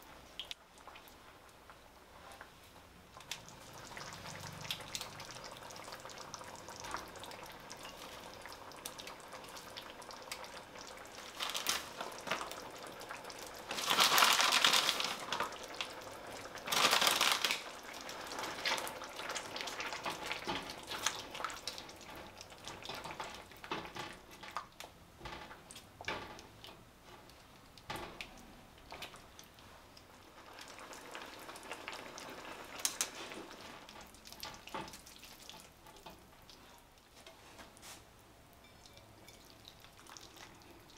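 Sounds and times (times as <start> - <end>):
sauce simmering and bubbling: 0.0 - 40.9
food sizzling in a pan: 3.4 - 24.5, 29.0 - 36.8.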